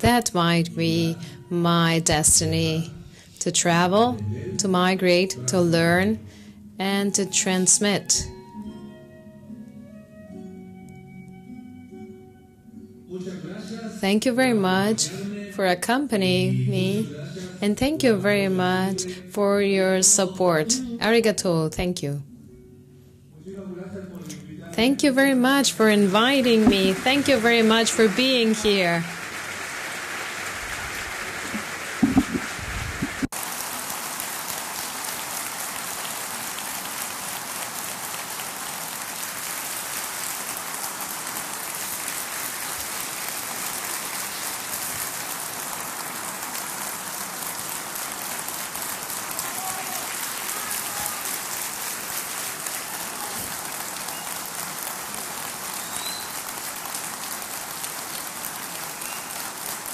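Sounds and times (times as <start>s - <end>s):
large audience applauding: 25.8s - 33.3s, 41.0s - 57.5s
low thumps: 32.0s - 33.3s.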